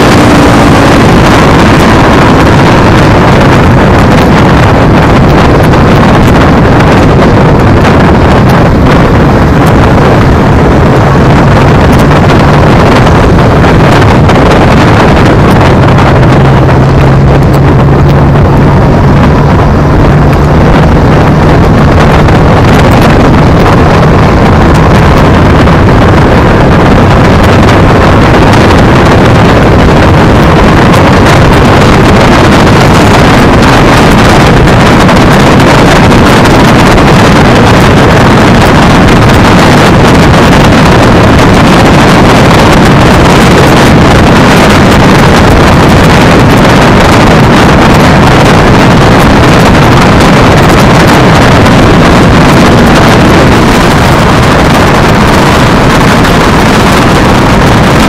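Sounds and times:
low hum: 0:00.0 - 0:58.0
wind buffeting microphone: 0:00.0 - 0:58.0.

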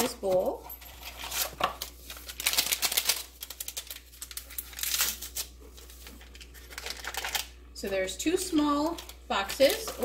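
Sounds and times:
crackling of paper packets: 0:01.0 - 0:07.6, 0:08.6 - 0:10.0.

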